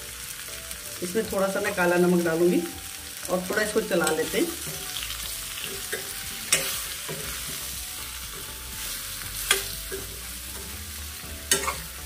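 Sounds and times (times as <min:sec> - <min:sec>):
oil sizzling: 0:00.0 - 0:12.0
spatula scraping in a pan: 0:04.0 - 0:12.0.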